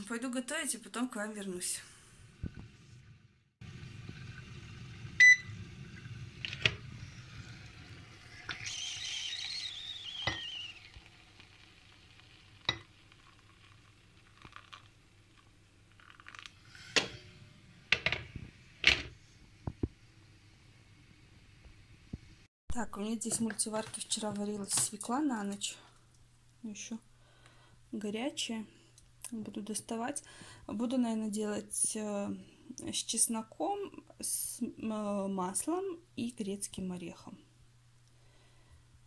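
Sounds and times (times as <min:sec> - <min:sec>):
appliance humming: 0:02.2 - 0:19.9.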